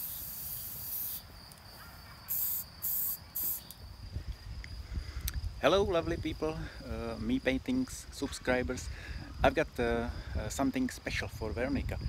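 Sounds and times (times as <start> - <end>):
spray paint can hissing: 0.0 - 1.2, 2.3 - 3.7.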